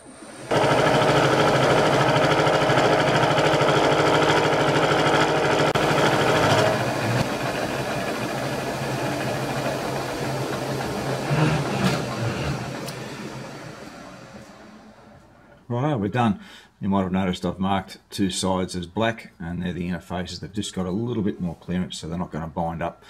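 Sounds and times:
milling machine cutting steel: 0:00.5 - 0:14.8.

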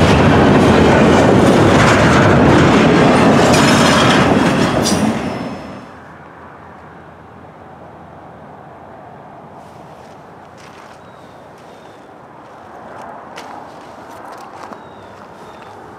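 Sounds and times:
train wheels running over rails: 0:00.0 - 0:06.0.

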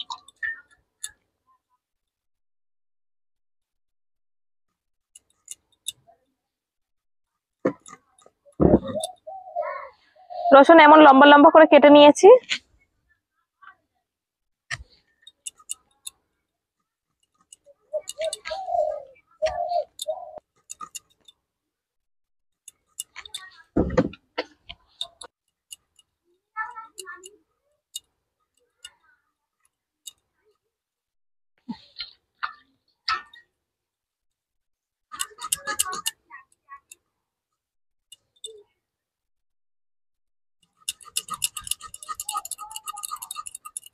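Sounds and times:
bird calling: 0:08.5 - 0:10.8, 0:17.5 - 0:21.0
food cut against a blade: 0:40.8 - 0:43.9.

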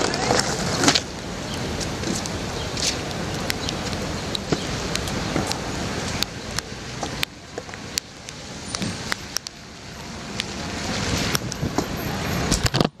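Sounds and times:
steady rain: 0:00.0 - 0:13.0
sharp taps of raindrops: 0:00.9 - 0:09.6, 0:10.3 - 0:10.6
truck tyres hissing on wet road: 0:01.1 - 0:12.6.

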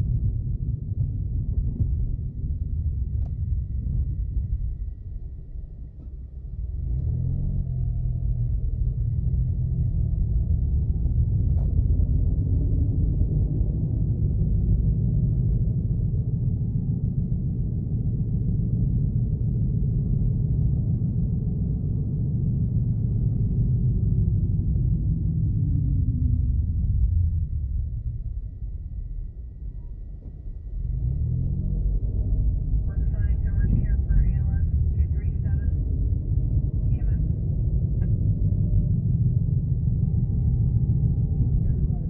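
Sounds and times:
car engine and tyre rumble: 0:00.0 - 0:42.0.

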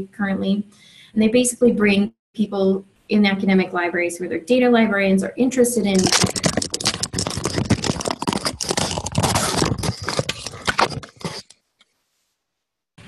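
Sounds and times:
harsh crackling audio noise: 0:05.9 - 0:11.6.

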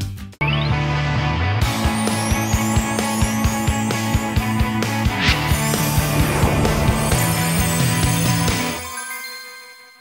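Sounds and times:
outro music: 0:04.9 - 0:08.7.

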